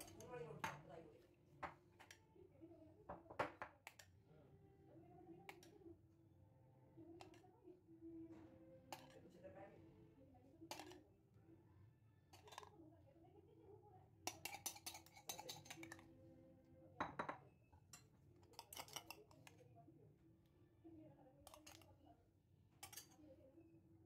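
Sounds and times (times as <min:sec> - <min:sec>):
spoon clinking against glass bowl: 0:00.0 - 0:00.8, 0:14.3 - 0:16.0, 0:17.0 - 0:19.4, 0:22.8 - 0:23.2.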